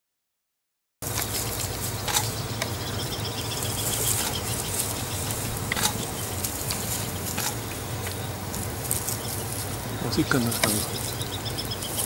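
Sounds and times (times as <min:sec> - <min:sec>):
low hum: 0:01.0 - 0:12.0
steady hiss: 0:01.0 - 0:12.0
sharp clicks: 0:05.0 - 0:08.2.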